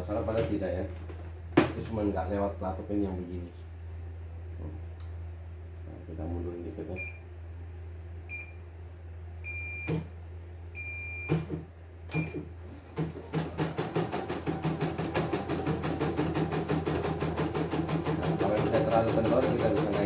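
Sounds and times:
embroidery machine stitching: 12.9s - 20.0s.

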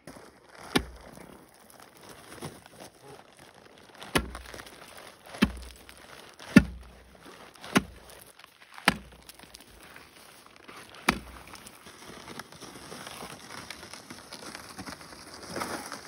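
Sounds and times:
ice chisel striking ice: 0.7s - 1.0s, 4.0s - 4.7s, 5.3s - 9.9s, 11.0s - 11.7s.

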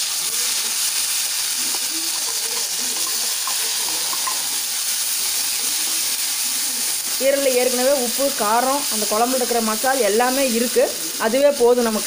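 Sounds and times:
liver sizzling in a wok: 0.0s - 12.0s
spoon stirring in a wok: 0.5s - 7.2s.

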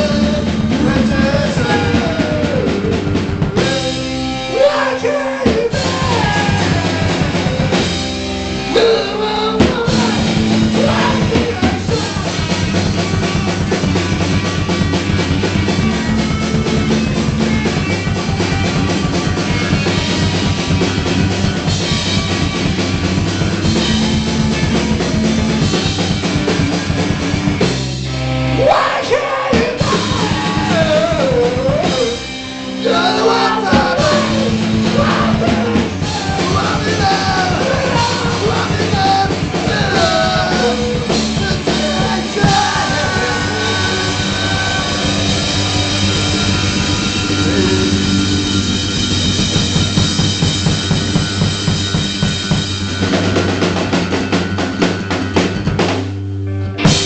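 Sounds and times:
shouted vocals: 0.0s - 8.0s, 8.7s - 12.6s, 28.5s - 48.3s
distorted electric guitars: 0.0s - 57.0s
pounding drum kit: 0.0s - 57.0s.

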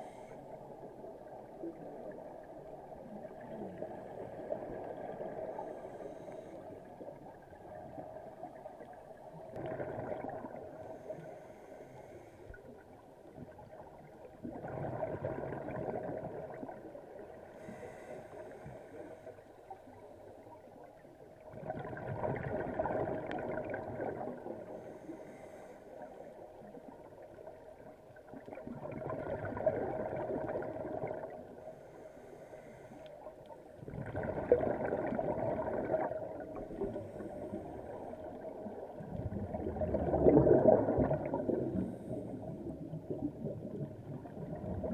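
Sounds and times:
exhaled bubbles underwater: 0.0s - 11.3s, 12.6s - 18.0s, 20.4s - 24.9s, 26.6s - 31.8s, 33.7s - 44.9s.

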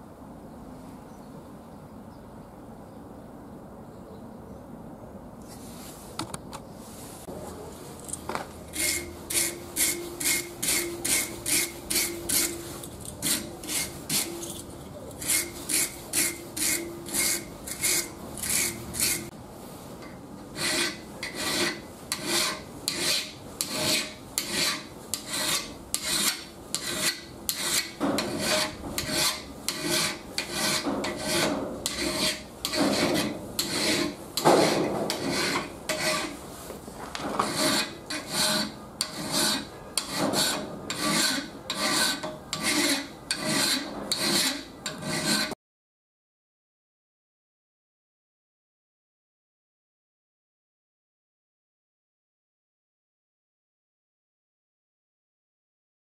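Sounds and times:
wire brush scraping metal: 8.0s - 19.3s, 20.6s - 36.4s, 37.2s - 45.6s
metal file scraping: 8.6s - 19.3s, 20.0s - 36.4s, 37.2s - 45.6s.

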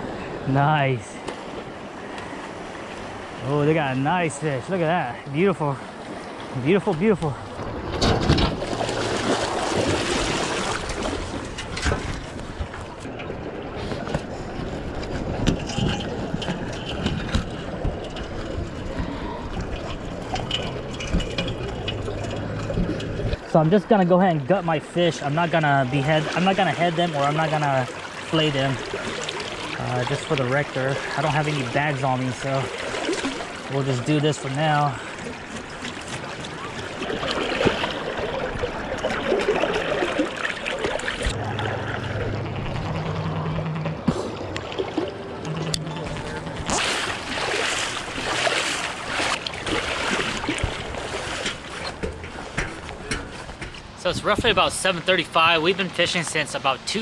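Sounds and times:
rushing water: 0.0s - 57.0s
wind: 0.0s - 57.0s
low steady hum: 37.3s - 54.8s.

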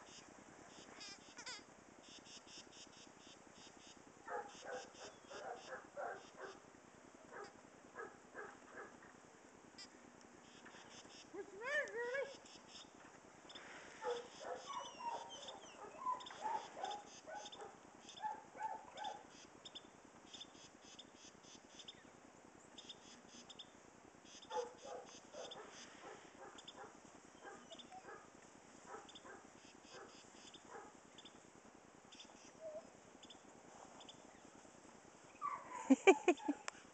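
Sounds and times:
dogs whimpering and yipping: 11.4s - 12.4s, 14.0s - 19.2s, 26.4s - 28.2s, 32.5s - 33.0s, 35.3s - 36.7s
paws crunching in snow: 24.5s - 30.1s.

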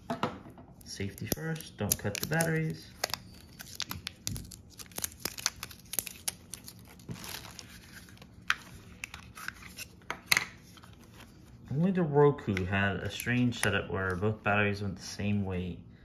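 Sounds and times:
tape and plastic crinkling and tearing: 0.8s - 11.4s.

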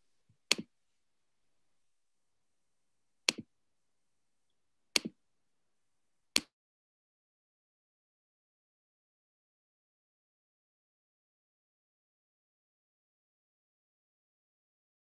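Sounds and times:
sharp double clicks: 5.0s - 5.2s.

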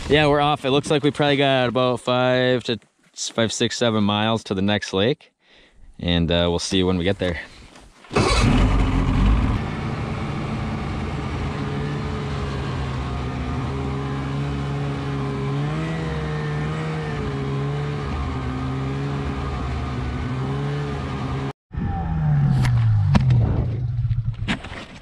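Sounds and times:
snowmobile engine running: 8.2s - 21.5s.

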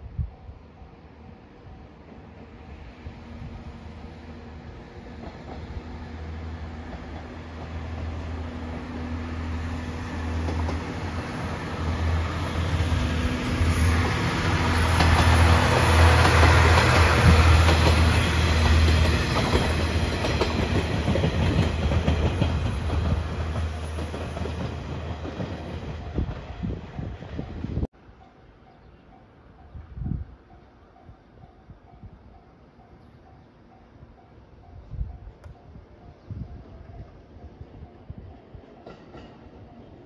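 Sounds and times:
diesel train engine drone: 0.0s - 40.0s.

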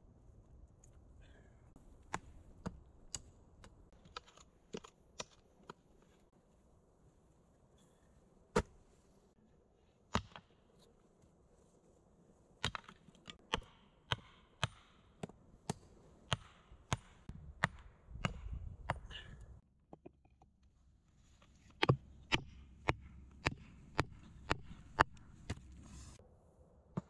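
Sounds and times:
hatchet striking wood: 12.6s - 18.5s, 21.8s - 25.6s.

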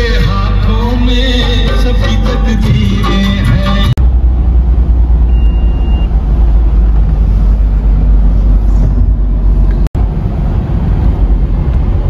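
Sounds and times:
car road and engine rumble: 0.0s - 12.0s
faint high beep: 5.2s - 6.1s.

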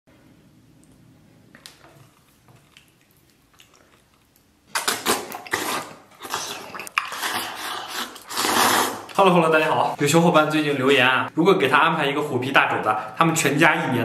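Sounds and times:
man chewing food: 0.7s - 9.2s.

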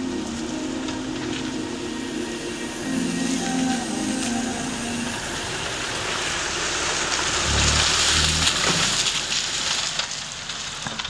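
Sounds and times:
tyres splashing through mud: 5.2s - 11.0s.

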